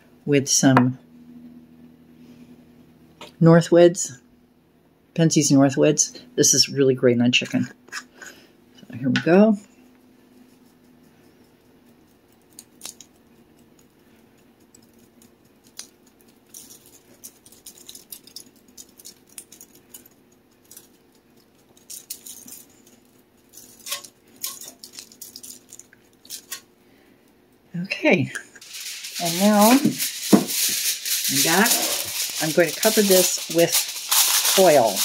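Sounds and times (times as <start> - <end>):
seasoning rattling in shaken jar: 14.6 - 26.6, 28.6 - 35.0.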